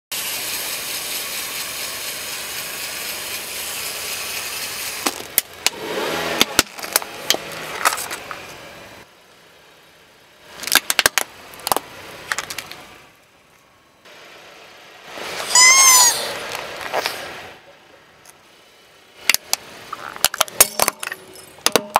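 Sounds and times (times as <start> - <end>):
car running: 0.1 - 21.9
plastic toys cracking and snapping: 10.6 - 12.8
rubber toy squeaking: 15.4 - 16.3.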